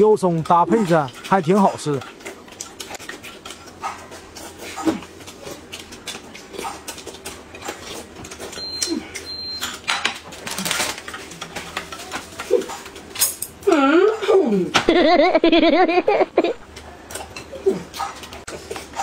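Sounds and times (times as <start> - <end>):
chewing and mouth sounds: 0.3 - 9.4
plastic wrappers crinkling: 10.2 - 12.6.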